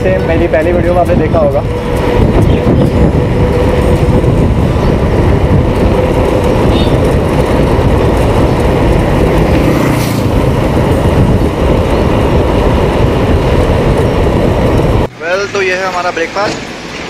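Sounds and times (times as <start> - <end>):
wind noise on microphone: 0.0 - 15.1.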